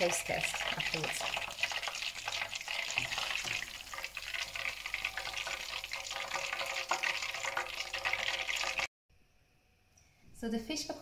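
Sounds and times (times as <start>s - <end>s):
battered fish deep-frying in oil: 0.0s - 8.9s.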